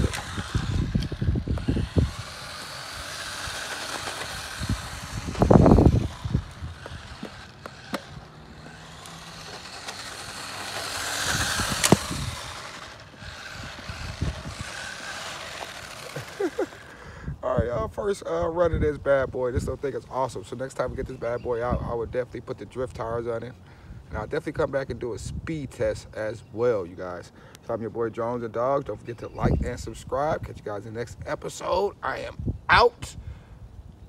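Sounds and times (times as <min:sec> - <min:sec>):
tyres rolling over asphalt: 0:00.0 - 0:17.0
small electric motor whining: 0:00.0 - 0:17.3
low rumbles: 0:00.0 - 0:17.4
sharp click: 0:11.4 - 0:12.8.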